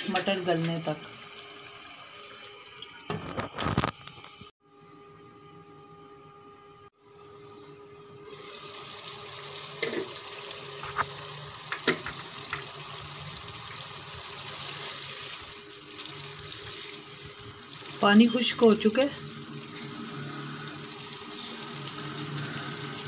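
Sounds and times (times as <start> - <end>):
vegetables sizzling in a pan: 0.0 - 3.4, 7.1 - 23.0.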